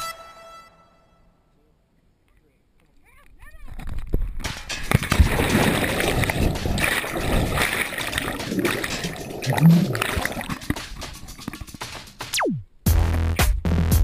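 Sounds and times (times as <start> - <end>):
splash into water: 4.9 - 11.1
muffled underwater rushing and bubbling: 5.0 - 11.8.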